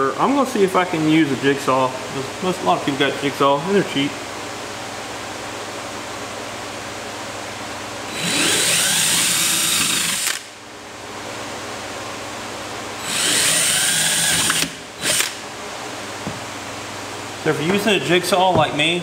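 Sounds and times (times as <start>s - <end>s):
steady fan hum: 0.0s - 19.0s
cordless drill whining: 8.1s - 10.5s, 13.0s - 15.4s.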